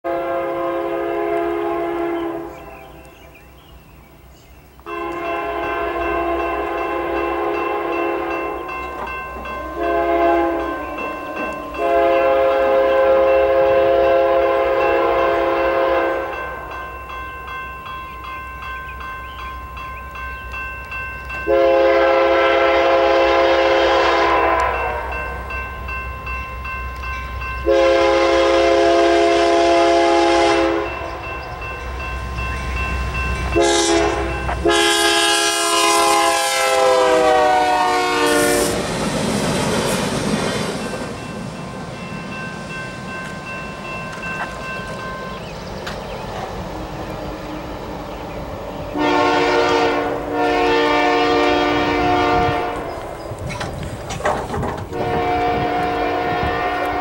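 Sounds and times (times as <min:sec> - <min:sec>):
locomotive air horn blasts: 0:00.0 - 0:03.0, 0:04.9 - 0:08.7, 0:09.5 - 0:16.6, 0:21.5 - 0:25.4, 0:27.6 - 0:31.2, 0:33.5 - 0:38.9, 0:48.9 - 0:52.9, 0:54.9 - 0:57.0
low locomotive rumble: 0:19.1 - 0:57.0.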